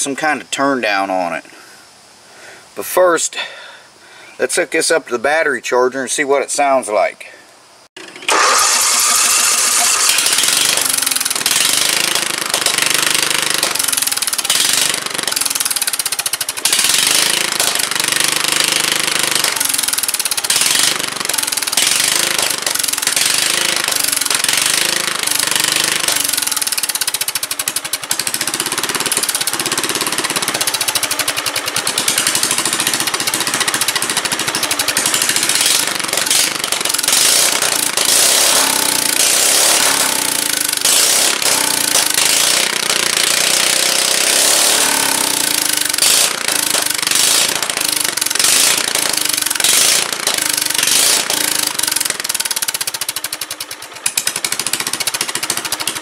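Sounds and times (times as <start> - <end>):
loud popping engine exhaust: 8.0 - 56.0.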